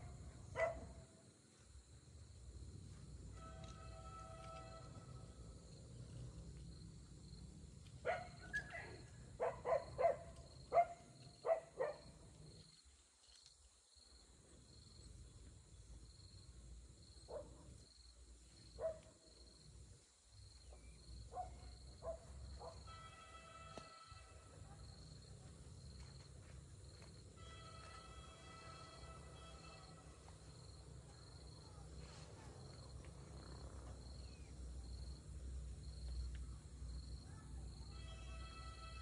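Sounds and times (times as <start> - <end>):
faint insect chirping: 0.0 - 39.0.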